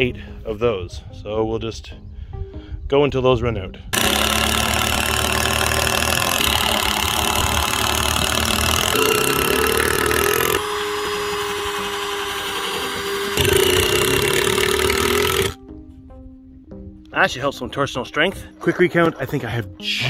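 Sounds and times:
cordless drills drilling wood: 4.0s - 15.6s.

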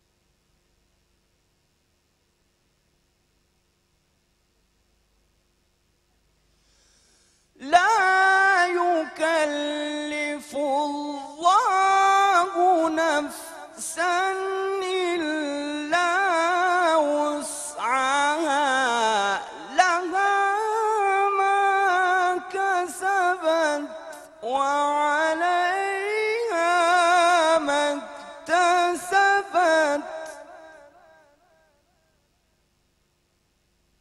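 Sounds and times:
man chanting solo: 7.6s - 31.2s.

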